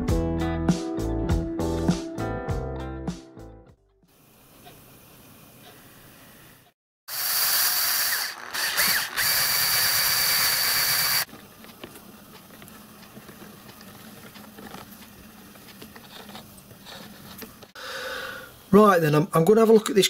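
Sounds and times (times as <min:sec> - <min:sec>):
machine whining: 0:07.1 - 0:11.3
lathe gears clicking: 0:07.1 - 0:15.8.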